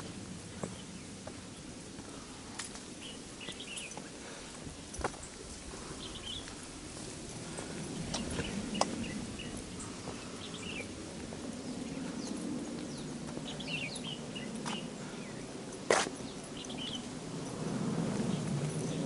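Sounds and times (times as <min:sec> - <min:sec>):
footsteps on wooden boardwalk: 0:00.0 - 0:13.6, 0:14.6 - 0:15.2, 0:15.9 - 0:16.4
birds chirping: 0:00.0 - 0:17.6.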